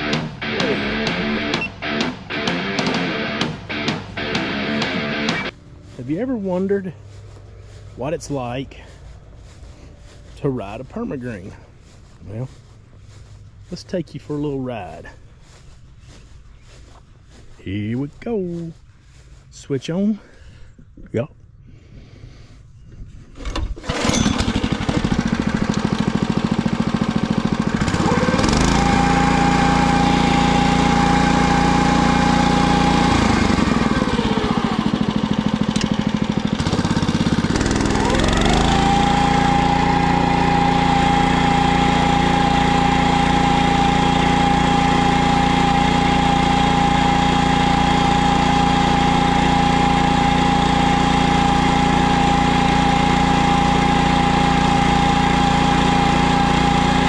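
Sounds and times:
high steady whine: 0.0 - 5.6
small petrol engine running: 23.8 - 57.0.

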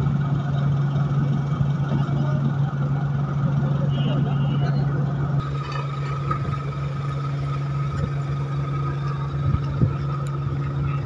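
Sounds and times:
ship engines humming: 4.5 - 11.0.

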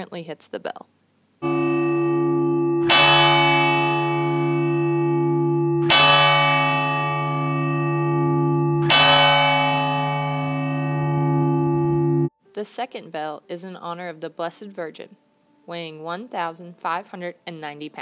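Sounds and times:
large church bell ringing: 1.4 - 12.3.

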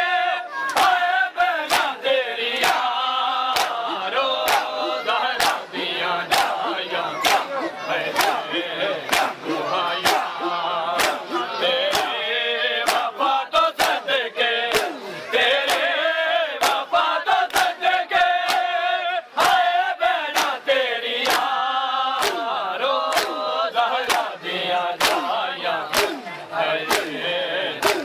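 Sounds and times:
men chanting a lament: 0.0 - 28.0
hands slapping chests: 0.6 - 1.0, 1.6 - 2.0, 3.5 - 4.8, 7.2 - 7.5, 9.1 - 10.3, 11.0 - 11.3, 12.8 - 13.1, 14.7 - 15.0, 16.6 - 16.9, 17.5 - 17.8, 18.4 - 18.7, 20.4 - 20.6, 21.2 - 21.6, 22.2 - 23.4, 24.0 - 24.3, 25.0 - 26.3, 26.9 - 27.2, 27.8 - 28.0.

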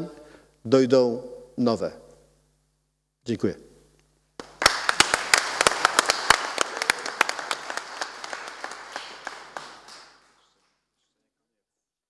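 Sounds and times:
audience applauding: 4.4 - 10.7.

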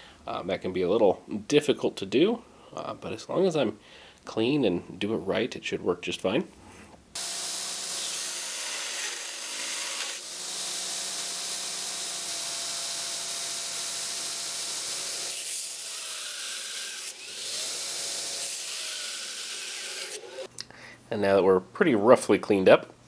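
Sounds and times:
belt grinder grinding metal: 7.2 - 20.5.

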